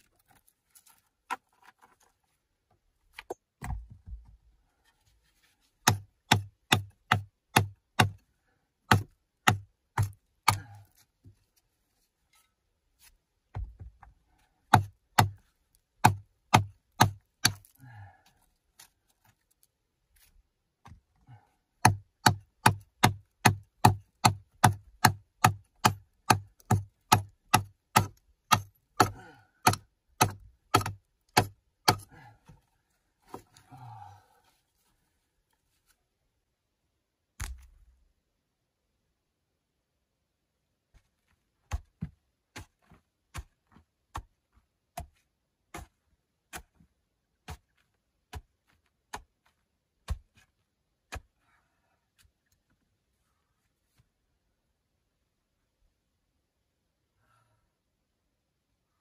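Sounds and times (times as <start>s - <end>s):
hand tool striking earth and rock: 5.8s - 8.2s, 8.9s - 11.1s, 14.6s - 19.6s, 21.8s - 32.2s, 41.6s - 51.4s.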